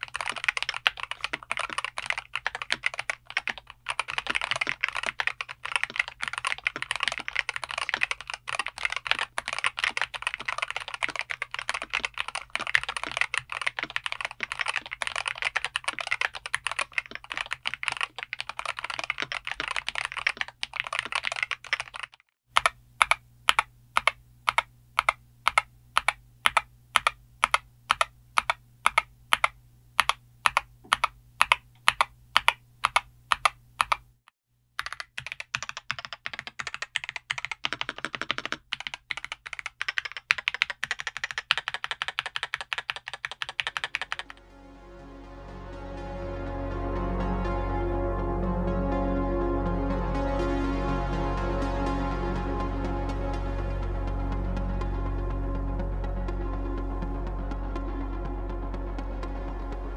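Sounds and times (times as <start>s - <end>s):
keyboard typing: 0.0s - 34.1s, 34.8s - 44.4s.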